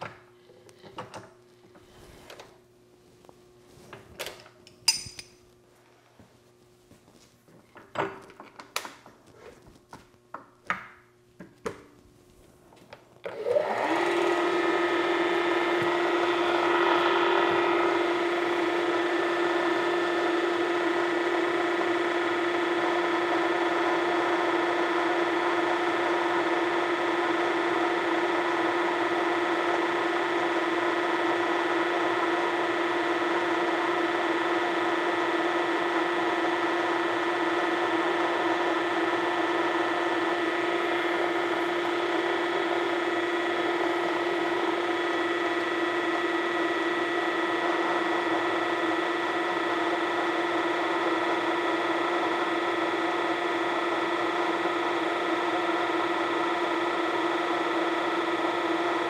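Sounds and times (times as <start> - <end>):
drill press humming: 13.2 - 59.0.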